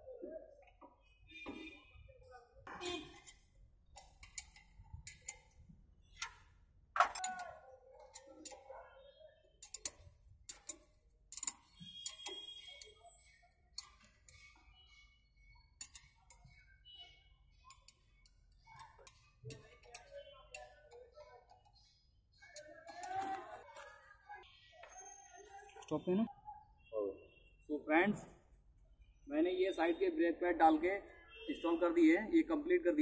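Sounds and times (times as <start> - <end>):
spanner clicking on bolts: 3.2 - 6.4, 9.6 - 12.9, 15.8 - 16.5.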